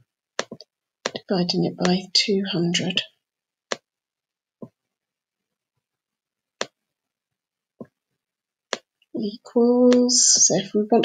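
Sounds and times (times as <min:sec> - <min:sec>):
computer mouse clicks: 0:00.4 - 0:01.2, 0:08.7 - 0:09.0, 0:09.9 - 0:10.1.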